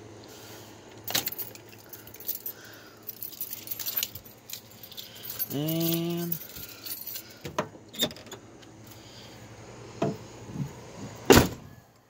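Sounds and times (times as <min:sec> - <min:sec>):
keys jangling: 0:01.1 - 0:07.4.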